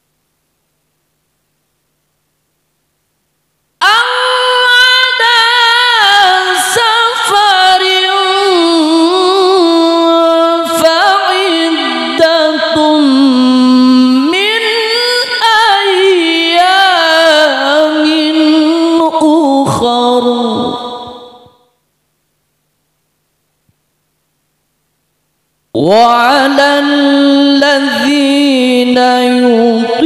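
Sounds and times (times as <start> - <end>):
man reciting melodically: 3.8 - 21.5, 25.8 - 30.0.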